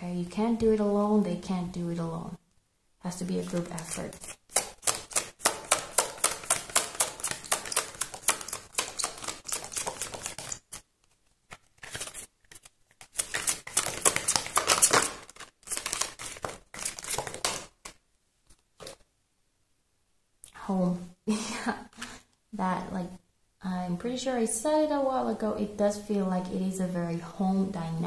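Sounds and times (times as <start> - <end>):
cards being shuffled: 3.3 - 19.1.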